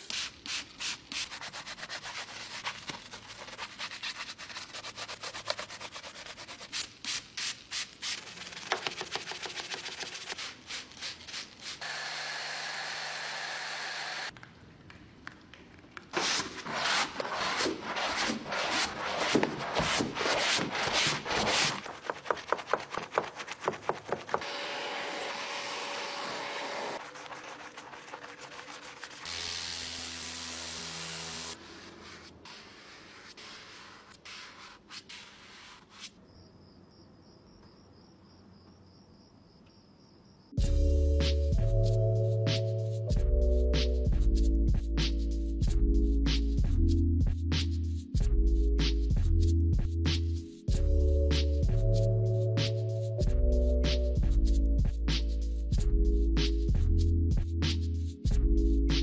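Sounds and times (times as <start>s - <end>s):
brushes scrubbing: 0.0s - 6.8s, 8.1s - 11.6s, 16.2s - 24.5s, 26.5s - 29.5s.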